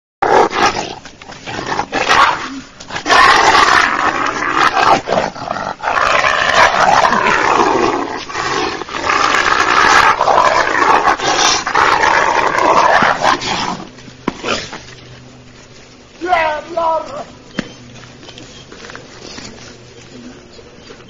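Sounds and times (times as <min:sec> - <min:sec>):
wolf snarling and growling: 0:00.2 - 0:14.9.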